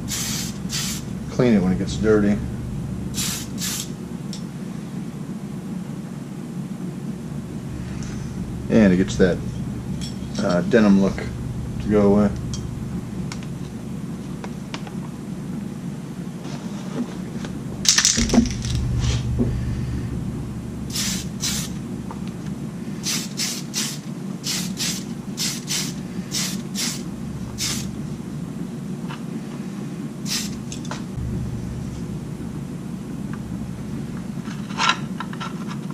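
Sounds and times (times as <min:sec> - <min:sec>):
aerosol spray can hissing: 0:00.0 - 0:01.1, 0:03.2 - 0:03.9, 0:20.9 - 0:21.8, 0:23.0 - 0:27.0, 0:27.6 - 0:27.9, 0:30.3 - 0:30.6
fume extraction fan hum: 0:00.0 - 0:35.9
plastic parts clattering: 0:17.8 - 0:18.8.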